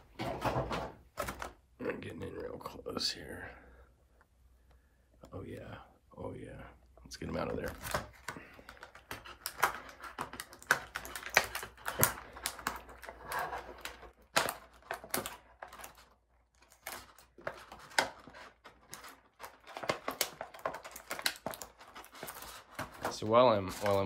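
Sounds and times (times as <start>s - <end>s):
plastic packaging crackling: 7.2s - 24.0s.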